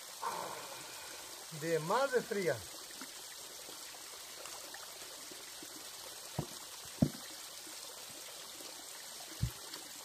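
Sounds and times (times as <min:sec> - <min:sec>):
creek water over rocks: 0:00.0 - 0:10.0
dull knocks: 0:06.4 - 0:07.2.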